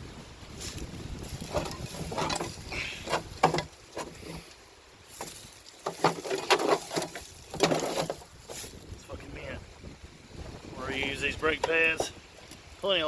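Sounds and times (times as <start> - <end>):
rusty metal knocking and scraping: 1.2 - 8.8.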